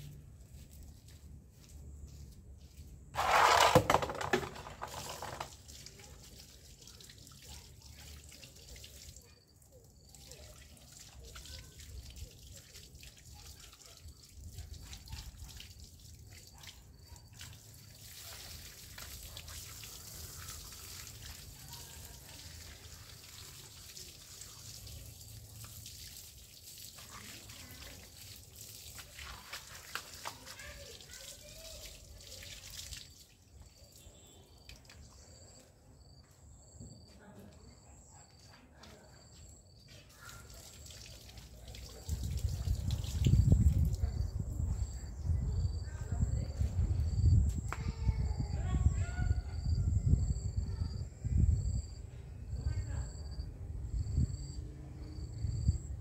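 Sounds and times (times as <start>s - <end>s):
water running into plastic basin: 3.1s - 35.6s, 39.8s - 44.9s.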